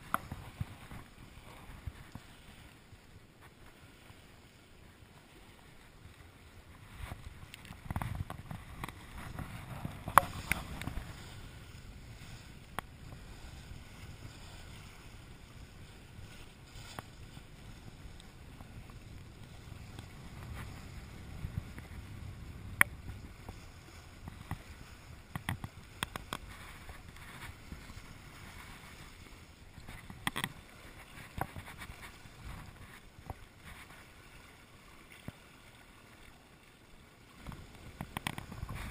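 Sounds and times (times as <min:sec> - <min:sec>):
water rushing past a hull: 0:00.0 - 0:38.9
low wind rumble: 0:06.5 - 0:26.0.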